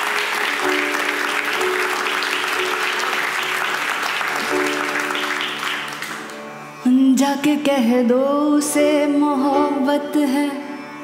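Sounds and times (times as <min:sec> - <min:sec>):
audience applauding: 0:00.0 - 0:06.6
held instrumental notes: 0:00.0 - 0:10.5.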